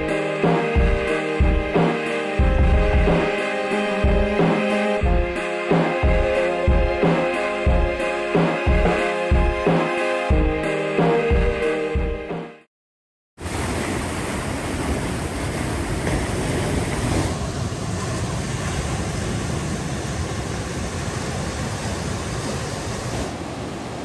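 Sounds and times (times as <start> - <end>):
surf washing onto beach: 13.4 - 24.0.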